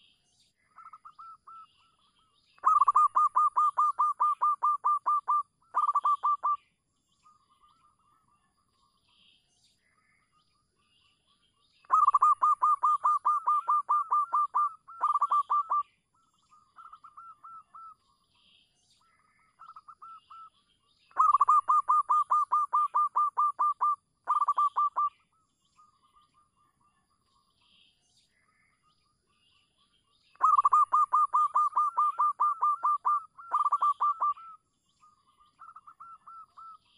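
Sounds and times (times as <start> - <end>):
dove cooing: 2.6 - 6.6, 11.9 - 15.8, 21.2 - 25.1, 30.4 - 34.6.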